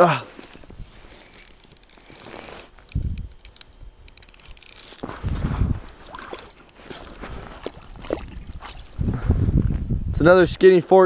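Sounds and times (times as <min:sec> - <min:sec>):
fishing tackle clicking and rustling: 0:00.4 - 0:09.0.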